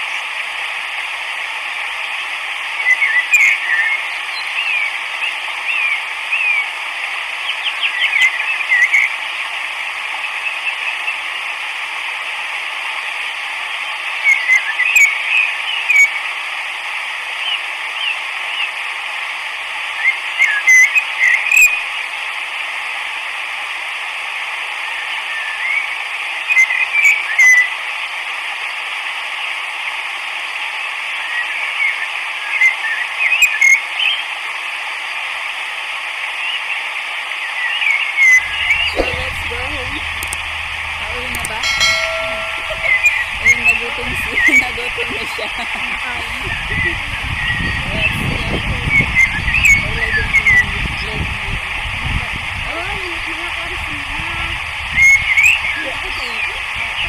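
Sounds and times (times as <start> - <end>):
high curling chirps: 38.4 - 44.5.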